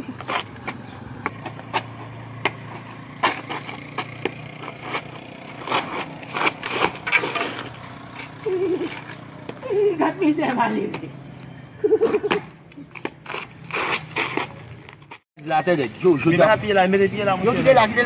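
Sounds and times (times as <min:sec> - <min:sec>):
stick tapping and scraping on concrete: 0:00.0 - 0:09.7, 0:12.3 - 0:15.3.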